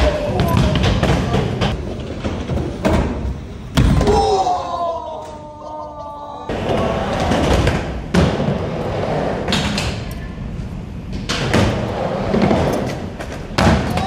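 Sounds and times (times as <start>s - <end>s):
skateboard wheels rolling: 0.0s - 3.7s, 6.5s - 14.0s
skateboard clacks and landings: 0.0s - 4.1s, 11.1s - 14.0s.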